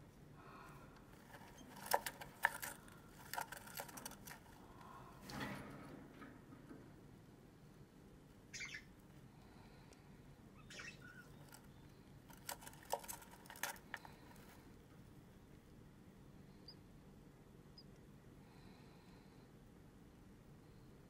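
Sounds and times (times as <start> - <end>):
faint scratches and clicks: 0.9 - 6.8, 12.3 - 15.1.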